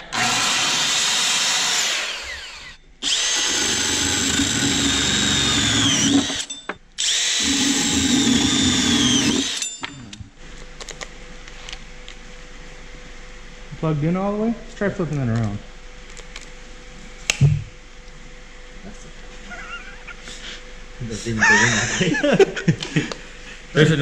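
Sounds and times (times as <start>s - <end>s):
drill with hole saw boring wood: 0.0s - 9.8s
circular saw running: 0.0s - 10.0s.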